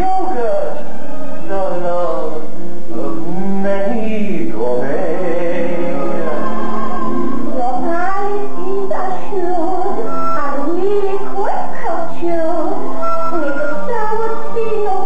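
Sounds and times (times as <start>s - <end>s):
woman singing: 7.5s - 15.0s.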